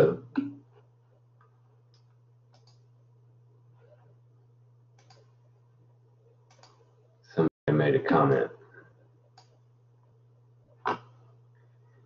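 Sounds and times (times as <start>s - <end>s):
low electrical hum: 0.0s - 12.0s
computer mouse clicks: 1.9s - 2.8s, 5.0s - 5.3s, 6.5s - 6.9s, 9.3s - 9.6s.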